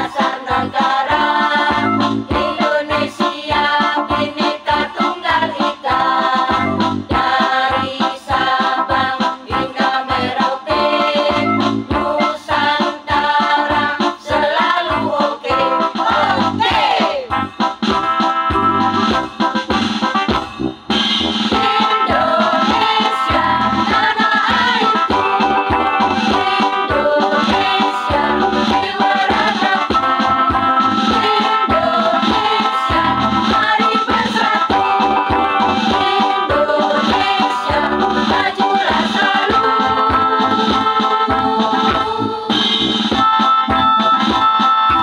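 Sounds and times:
women's choir singing: 0.0s - 11.4s, 12.0s - 17.2s, 21.5s - 25.6s, 26.2s - 30.1s, 31.1s - 42.5s
drum beat: 0.0s - 42.2s
electronic keyboard: 0.0s - 45.0s.

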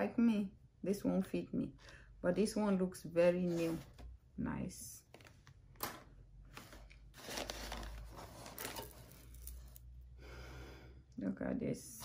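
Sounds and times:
hands rummaging through jewelry: 6.6s - 10.0s.

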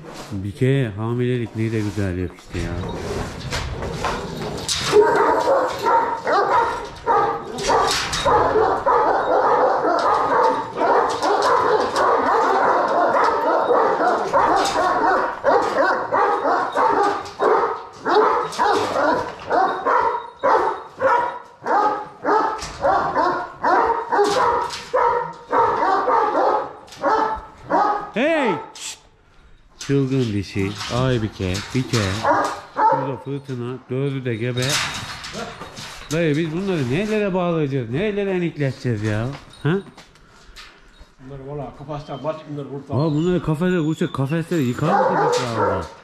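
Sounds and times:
dogs barking: 3.9s - 28.2s, 32.0s - 33.4s, 44.5s - 46.0s.

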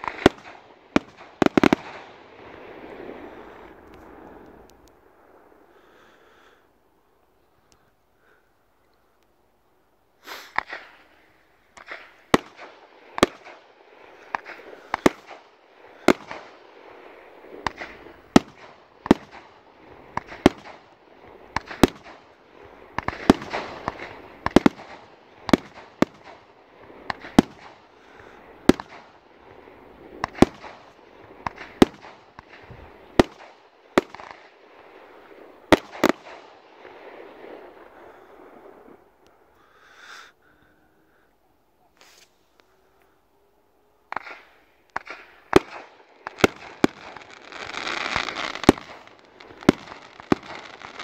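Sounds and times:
firework cake bangs: 48.0s - 51.0s.

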